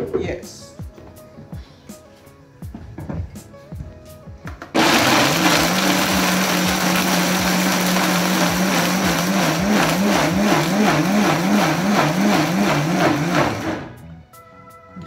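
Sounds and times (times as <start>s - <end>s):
blender motor grinding: 4.8s - 14.0s.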